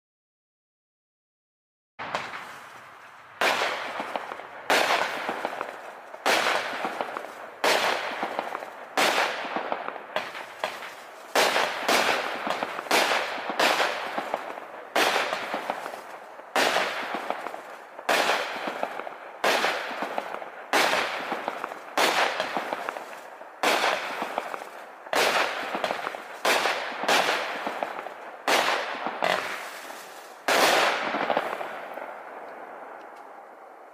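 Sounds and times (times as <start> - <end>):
firework cake shots: 3.4 - 33.2.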